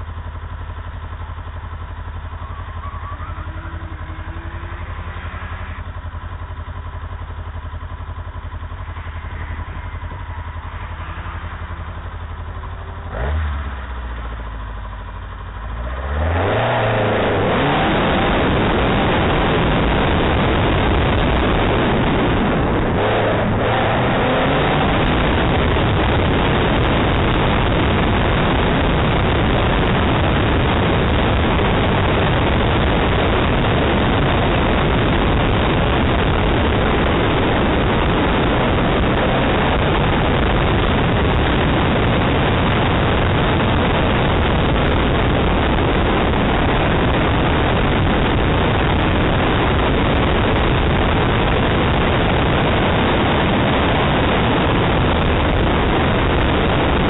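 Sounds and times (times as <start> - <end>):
car noise: 0.0 - 57.0
wind rush: 16.2 - 57.0.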